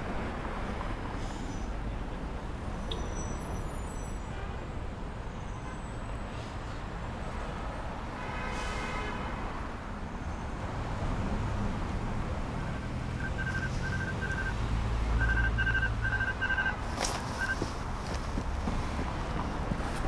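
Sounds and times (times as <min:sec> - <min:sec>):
city traffic rumble: 0:00.0 - 0:20.0
ankle monitor short high beeps: 0:13.2 - 0:14.6, 0:15.2 - 0:16.8, 0:17.4 - 0:17.7.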